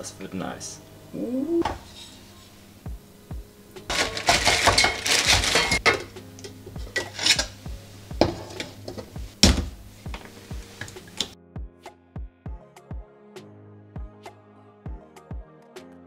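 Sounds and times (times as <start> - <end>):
quiet background music: 0.0 - 16.0
seasoning rattling from a jar: 3.9 - 5.8
pot lid clinking: 3.9 - 7.6, 8.2 - 9.1.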